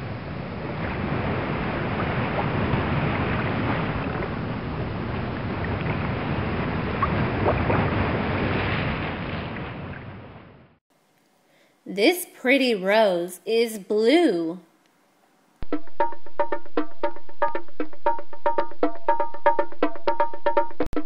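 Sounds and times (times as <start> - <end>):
waves washing on a beach: 0.0 - 10.0.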